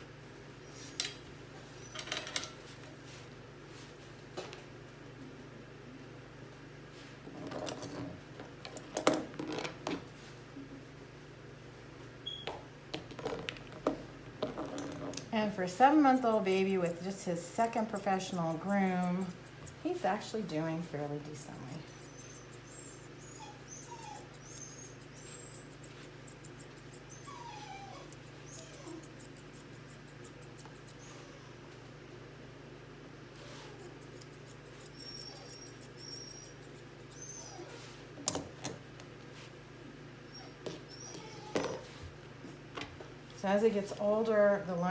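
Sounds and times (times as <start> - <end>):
steady low hum: 0.0 - 44.9
grooming shears snipping: 15.2 - 23.2, 24.1 - 27.3, 28.0 - 31.0, 33.7 - 37.3
puppy whimpering: 21.6 - 25.9, 26.9 - 29.2, 34.8 - 38.0, 40.2 - 41.9.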